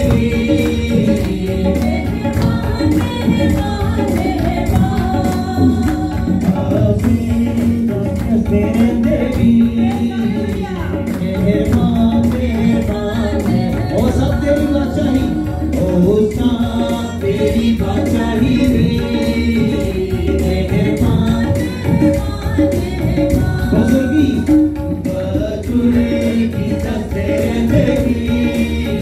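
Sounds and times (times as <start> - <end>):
rhythmic percussion beat: 0.0 - 29.0
voices singing together: 0.0 - 29.0.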